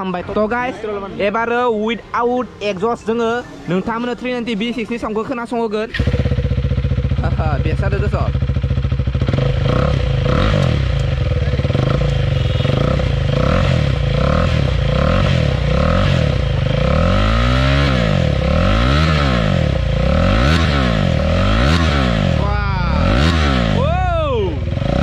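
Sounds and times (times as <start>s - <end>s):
motorcycle engine revving: 5.8s - 25.0s.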